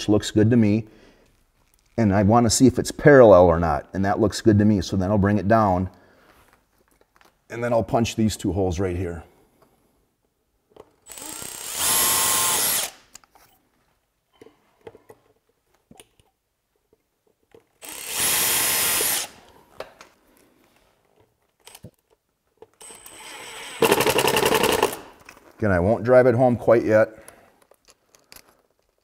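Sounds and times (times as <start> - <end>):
another power tool: 11.1 - 13.0, 17.8 - 19.4, 22.8 - 25.1
power drill boring metal: 11.1 - 13.0, 17.8 - 19.4, 22.8 - 25.0.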